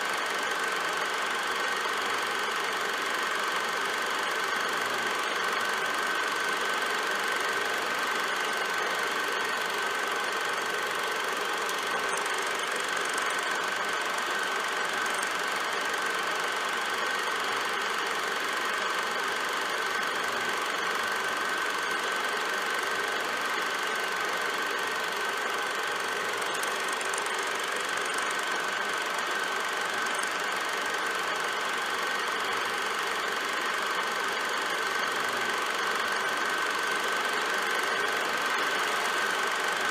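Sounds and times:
constant high whine: 0.0s - 39.9s
film projector clatter: 0.0s - 39.9s.

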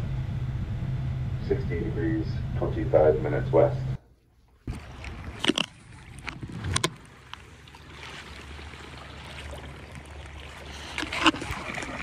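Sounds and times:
paddle splashes: 4.4s - 12.0s
water washing: 4.6s - 12.0s.

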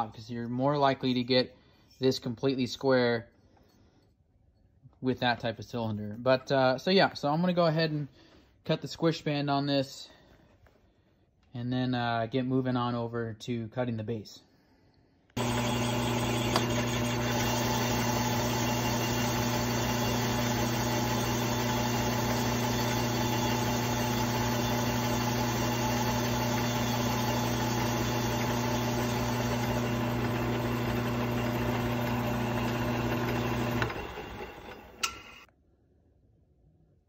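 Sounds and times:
lathe spinning down: 15.4s - 35.5s
metal lathe humming: 15.4s - 35.5s.

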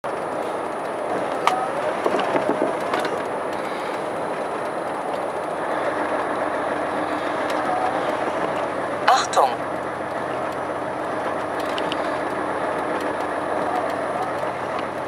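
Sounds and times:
truck engine and road noise: 0.0s - 15.0s.

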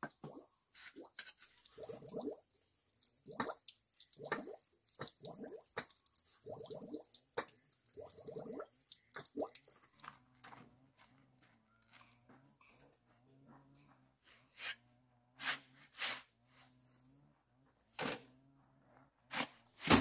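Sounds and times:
water dripping into plastic basin: 0.0s - 10.2s.

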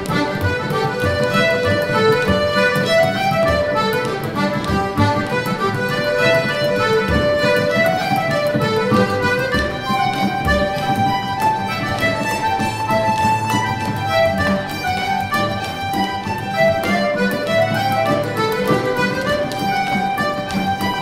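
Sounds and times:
accordion: 0.0s - 21.0s
bones clacking rhythm: 0.0s - 21.0s
fiddle: 0.0s - 21.0s.

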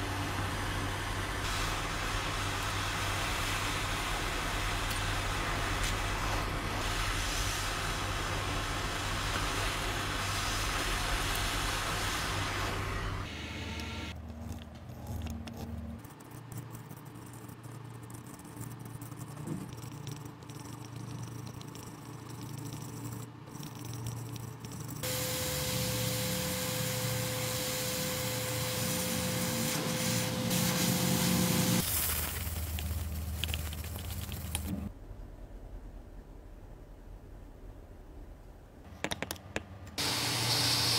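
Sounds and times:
electric blower rushing air: 40.0s - 40.9s.

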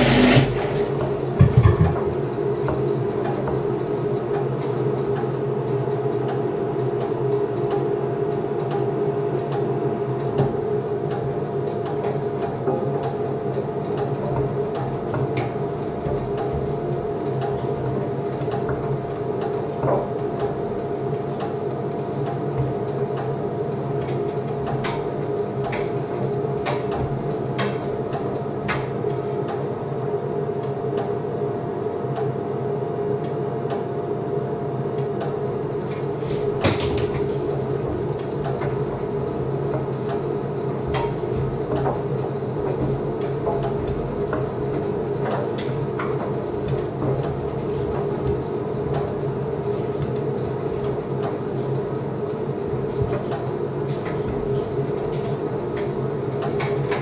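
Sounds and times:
clicks and knocks in drum: 0.0s - 2.8s
tumble dryer drum hum: 0.0s - 30.2s, 34.0s - 57.0s.

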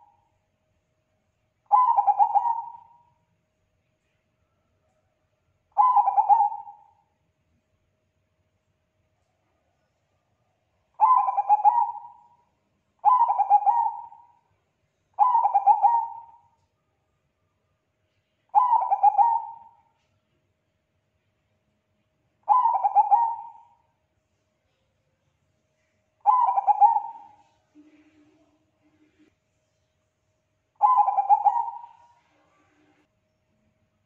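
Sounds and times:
dove cooing: 1.7s - 3.0s, 5.8s - 6.9s, 11.0s - 12.3s, 13.0s - 14.4s, 15.2s - 16.5s, 18.5s - 19.8s, 22.5s - 23.8s, 26.2s - 28.5s, 30.8s - 32.9s.

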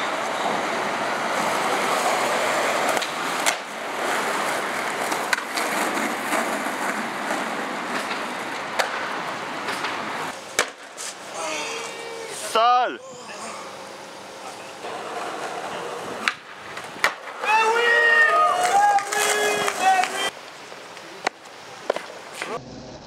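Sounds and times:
skateboard wheels rolling on pavement: 0.0s - 12.6s, 13.7s - 23.0s
skateboard clacks: 1.4s - 11.0s, 14.9s - 20.4s.

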